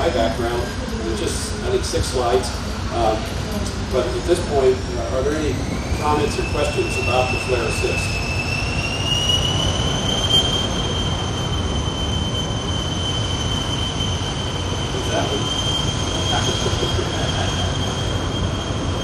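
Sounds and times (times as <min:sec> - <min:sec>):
high-pitched whine: 0:00.0 - 0:19.0
faint voices: 0:16.2 - 0:17.8.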